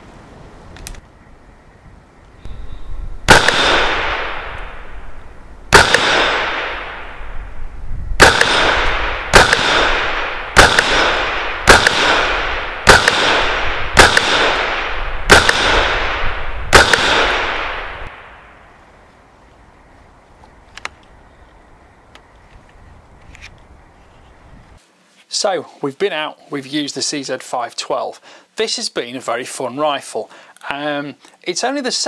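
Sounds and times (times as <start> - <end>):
rifle shots: 3.2 - 5.0, 5.7 - 7.3, 8.2 - 18.4
gunshot echo among trees: 3.2 - 5.1, 5.7 - 7.4, 8.2 - 18.6.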